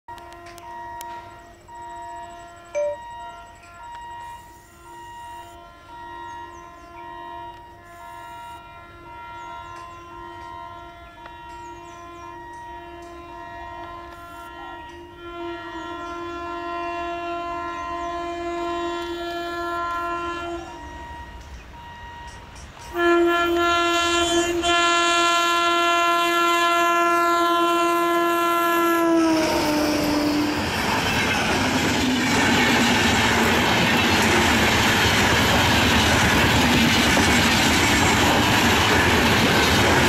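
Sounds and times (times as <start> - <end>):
locomotive horn blast: 0.1 - 36.6
train wheels clattering: 29.9 - 40.0.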